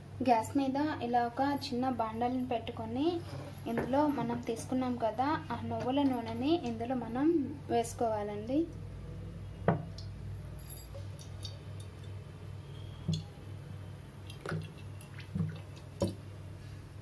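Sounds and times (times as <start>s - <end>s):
low steady hum: 0.0s - 17.0s
soft drips and taps: 13.1s - 13.3s, 14.2s - 16.2s.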